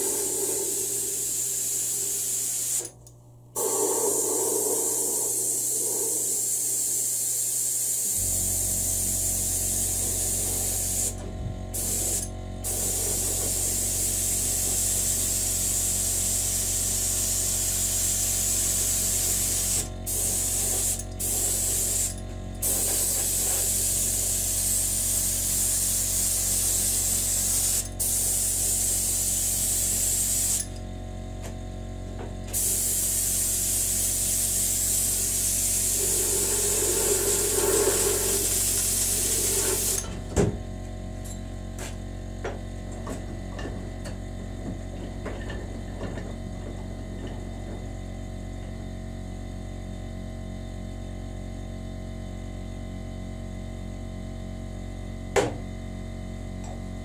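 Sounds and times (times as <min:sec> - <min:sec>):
spray gun hissing: 0:00.0 - 0:02.9, 0:03.6 - 0:11.2, 0:11.8 - 0:30.6, 0:32.6 - 0:40.0.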